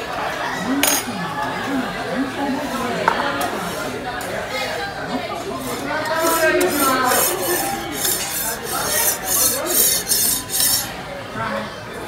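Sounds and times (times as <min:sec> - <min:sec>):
metal spatula scraping griddle: 0:05.6 - 0:11.0.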